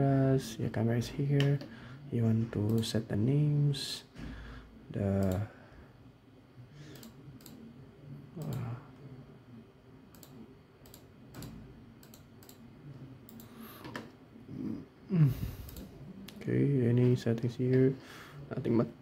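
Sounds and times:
computer mouse clicks: 0:05.2 - 0:05.4, 0:06.9 - 0:07.7, 0:08.4 - 0:08.7, 0:10.1 - 0:14.2, 0:15.6 - 0:16.4.

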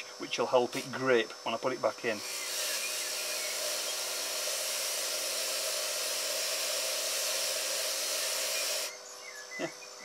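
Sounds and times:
faint motor hum: 0:00.0 - 0:10.0
polisher disc abrasive hiss: 0:02.0 - 0:08.9.

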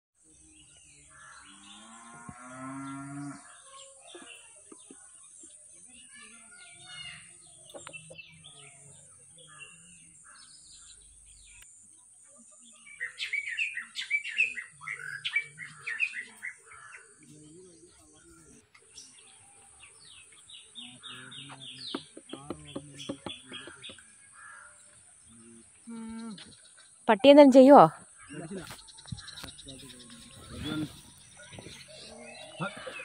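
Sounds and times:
birds chirping: 0:00.2 - 0:33.0
cow mooing: 0:01.5 - 0:03.5.

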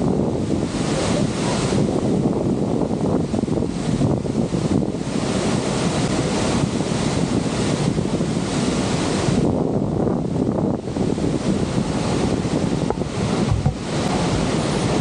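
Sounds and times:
rushing falling water: 0:00.0 - 0:09.5, 0:10.3 - 0:15.0
wind buffeting microphone: 0:00.0 - 0:15.0.

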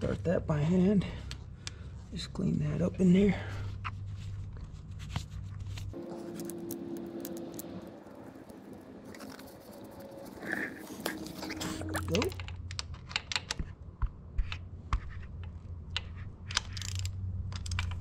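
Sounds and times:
rag rubbing and scraping engine: 0:05.9 - 0:12.4.

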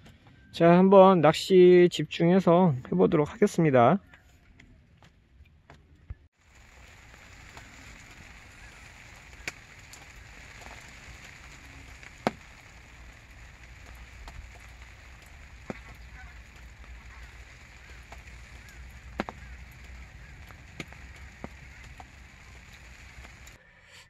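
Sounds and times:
light rain falling: 0:06.4 - 0:23.6.

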